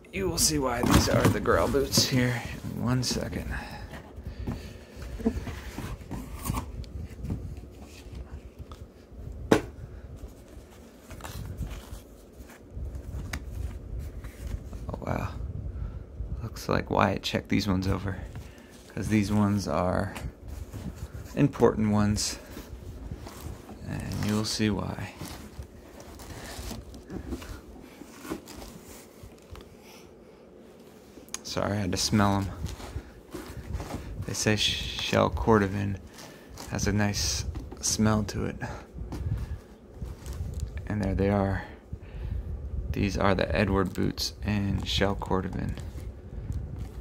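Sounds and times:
cardboard box rustling: 0.4 - 8.5, 18.3 - 29.6, 32.0 - 34.7
cloth bag rustling: 20.4 - 29.6.

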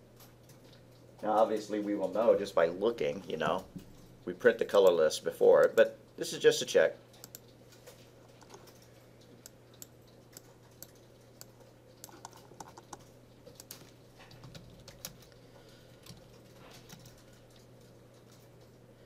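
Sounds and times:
typing on computer keyboard: 8.3 - 18.5.

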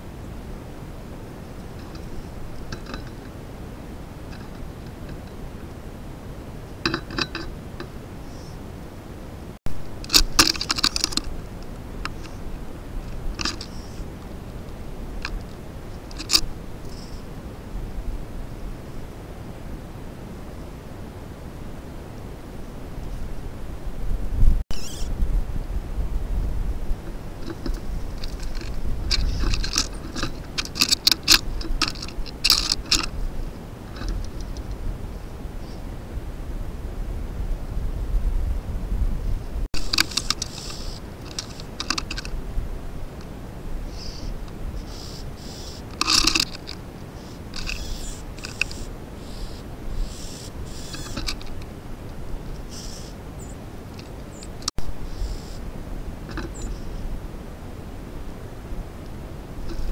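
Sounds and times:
low wind rumble: 0.0 - 59.9
birds pecking and flapping: 0.8 - 8.6, 9.9 - 17.4, 26.9 - 34.9, 39.8 - 57.0.

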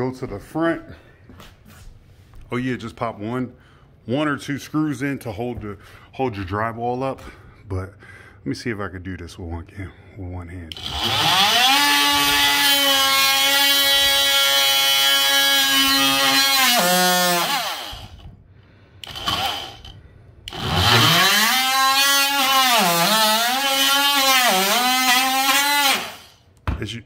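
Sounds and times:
multi-tool cutting drywall: 10.7 - 18.4, 19.0 - 26.4.

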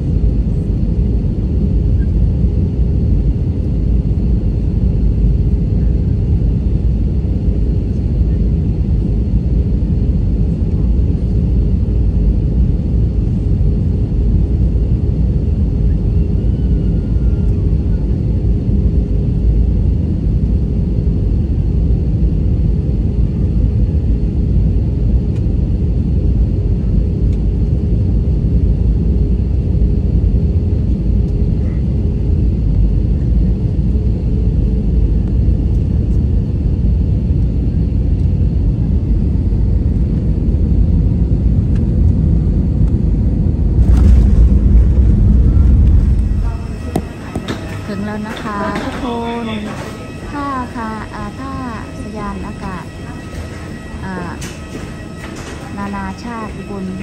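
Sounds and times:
jet engine and airflow rumble: 0.0 - 57.0.

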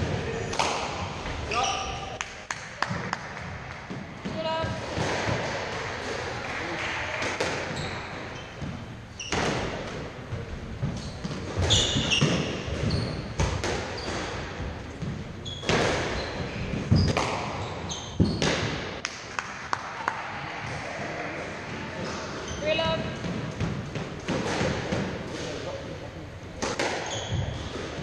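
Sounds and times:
shoes squeaking on wooden floor: 7.1 - 18.6, 27.0 - 28.0.

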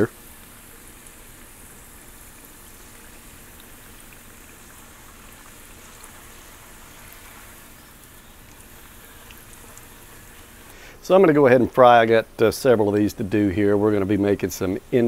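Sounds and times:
dough sizzling in hot oil: 0.0 - 10.8.

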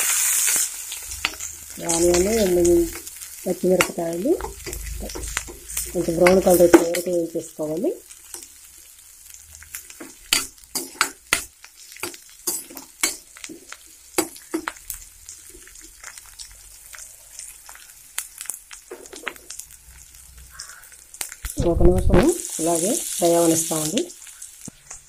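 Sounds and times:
metal spoon scraping a pan: 0.0 - 7.2, 9.7 - 16.2
onions sizzling in hot oil: 0.0 - 25.0.

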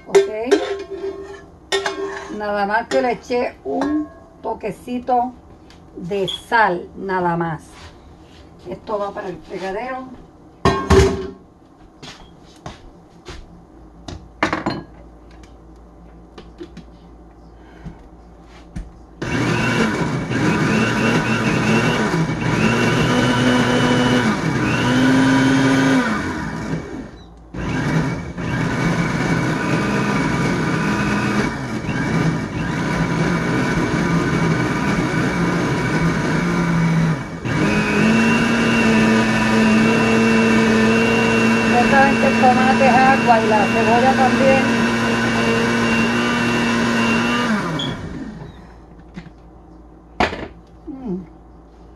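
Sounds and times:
electric blender running: 19.2 - 48.7.

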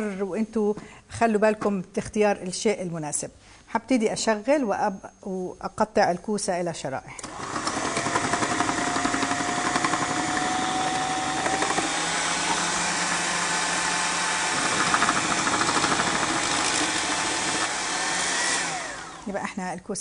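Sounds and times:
food processor motor whining: 7.2 - 19.4.

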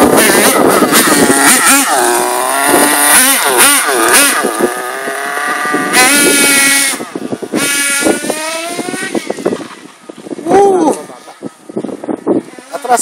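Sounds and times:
rc car engine revving: 0.0 - 9.6.

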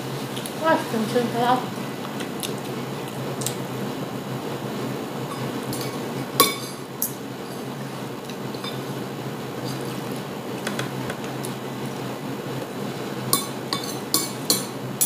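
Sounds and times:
low background hum: 0.0 - 15.0
cutlery clinking on ceramic plate: 13.4 - 14.7.

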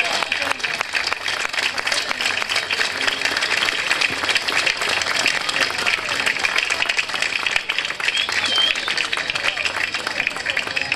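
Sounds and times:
crowd applauding: 0.0 - 10.9.

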